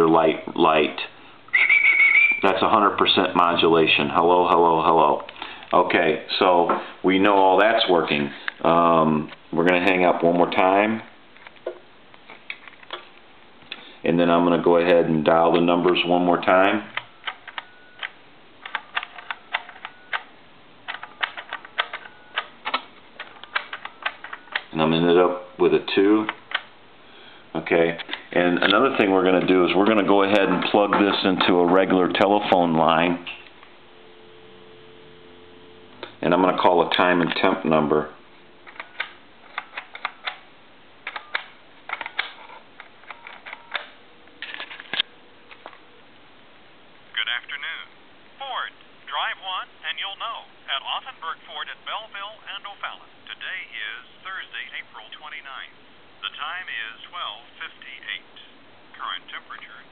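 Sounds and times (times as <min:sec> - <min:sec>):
telephone keypad buttons clicking: 0:17.0 - 0:20.3, 0:20.9 - 0:24.7, 0:41.0 - 0:42.3
telephone keypad clicking: 0:41.0 - 0:42.3.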